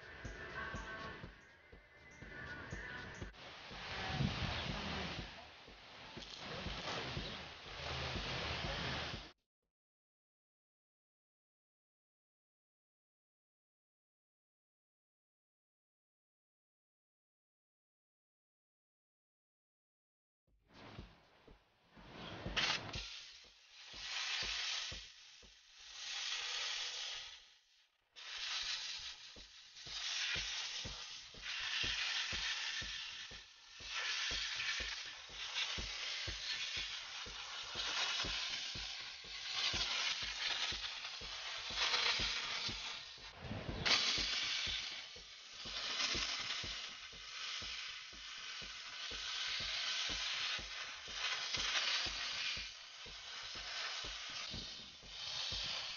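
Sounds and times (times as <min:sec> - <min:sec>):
steam cleaner nozzle hissing: 0:02.2 - 0:09.3, 0:22.0 - 0:55.9.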